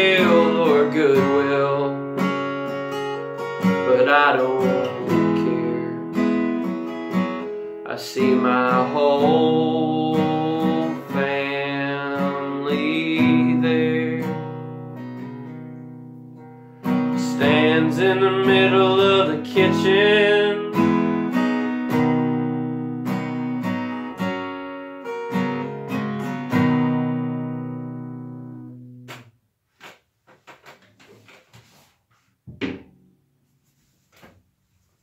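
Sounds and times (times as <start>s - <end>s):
man singing: 0.0s - 2.3s, 3.6s - 6.2s, 7.8s - 14.7s, 17.1s - 21.0s
acoustic guitar strummed and picked: 0.0s - 31.3s.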